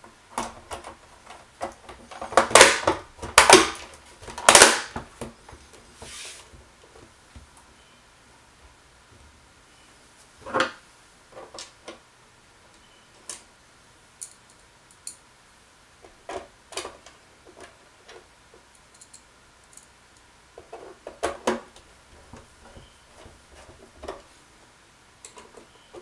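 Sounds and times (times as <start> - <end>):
plastic cover snapping into place: 1.6 - 5.3.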